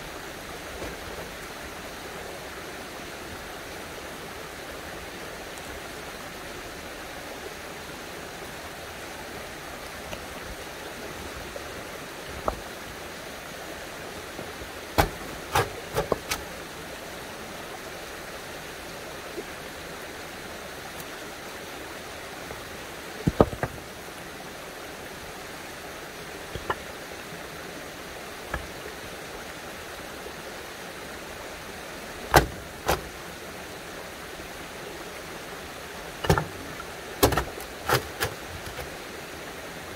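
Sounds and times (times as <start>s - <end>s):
running water: 0.0s - 39.9s
rocks knocking together: 14.4s - 16.5s, 23.2s - 23.8s, 26.5s - 26.9s, 32.3s - 33.1s, 36.2s - 38.9s.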